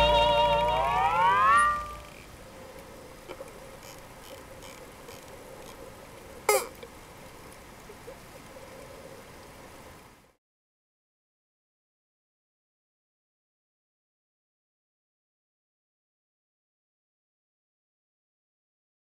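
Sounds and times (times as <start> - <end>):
hawaiian music chord: 0.0 - 2.1.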